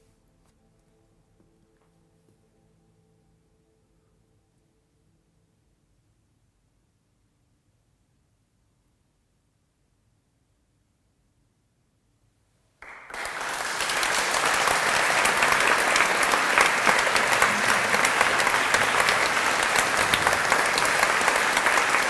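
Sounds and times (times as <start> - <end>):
audience applauding: 12.8 - 22.0.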